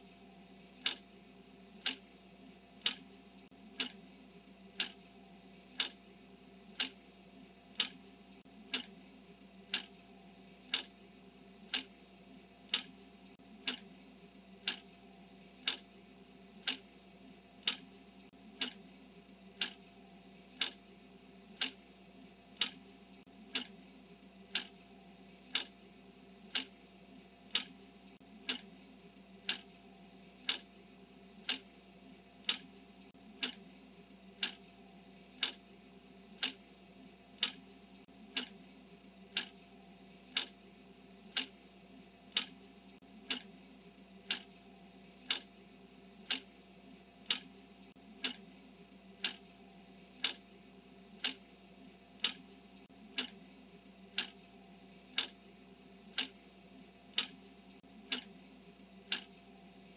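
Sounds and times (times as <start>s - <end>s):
clock ticking: 0.8s - 1.0s, 1.8s - 2.2s, 2.8s - 4.0s, 4.7s - 5.0s, 5.7s - 6.0s, 6.7s - 7.1s, 7.7s - 9.0s, 9.7s - 10.0s, 10.6s - 11.0s, 11.6s - 14.0s, 14.6s - 15.0s, 15.6s - 15.9s, 16.6s - 17.0s, 17.6s - 18.9s, 19.5s - 20.0s, 20.6s - 20.9s, 21.5s - 21.9s, 22.5s - 23.8s, 24.5s - 24.9s, 25.5s - 25.8s, 26.5s - 26.8s, 27.4s - 28.8s, 29.4s - 29.8s, 30.4s - 30.7s, 31.4s - 31.8s, 32.4s - 33.7s, 34.4s - 34.6s, 35.4s - 35.6s, 36.3s - 36.7s, 37.3s - 38.6s, 39.3s - 39.6s, 40.3s - 40.6s, 41.3s - 41.7s, 42.3s - 43.6s, 44.2s - 44.6s, 45.2s - 45.5s, 46.2s - 46.6s, 47.2s - 48.5s, 49.1s - 50.4s, 51.1s - 51.6s, 52.2s - 53.4s, 54.1s - 54.5s, 55.1s - 55.4s, 56.1s - 56.5s, 57.1s - 58.4s, 59.0s - 59.5s.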